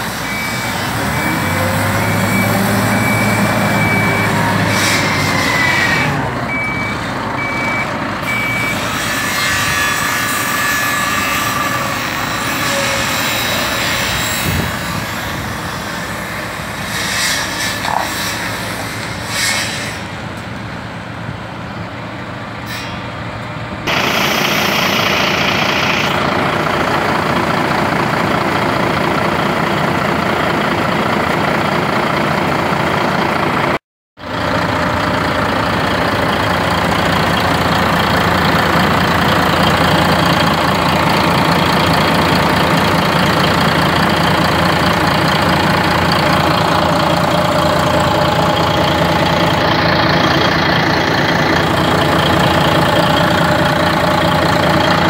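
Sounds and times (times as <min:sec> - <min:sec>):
diesel engine idling: 0:00.0 - 0:09.1, 0:23.3 - 0:55.0.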